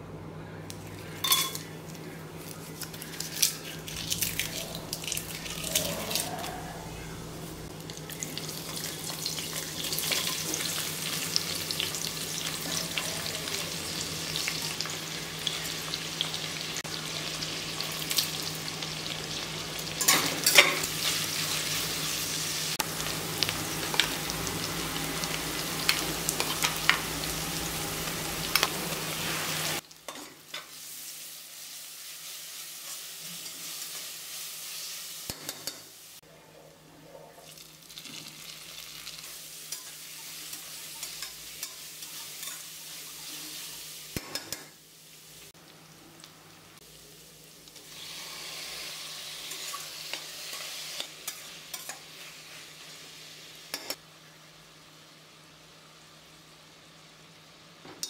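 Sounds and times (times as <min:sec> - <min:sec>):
food sizzling in hot oil: 0:07.3 - 0:36.2, 0:37.4 - 0:54.0.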